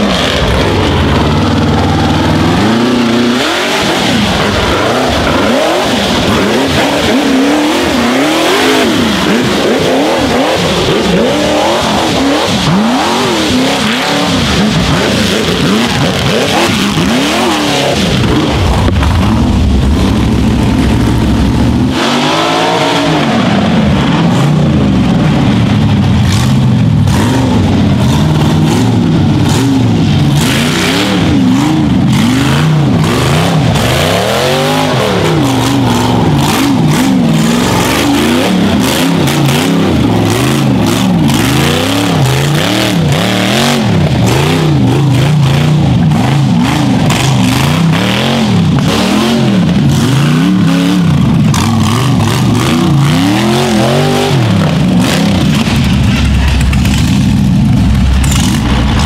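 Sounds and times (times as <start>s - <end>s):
buggy engine revving hard: 0.0s - 59.0s
sharp knocks and clatter: 55.0s - 59.0s.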